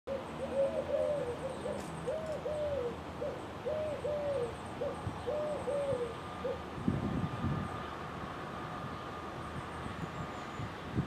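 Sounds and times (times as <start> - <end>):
dove cooing: 0.1 - 6.7.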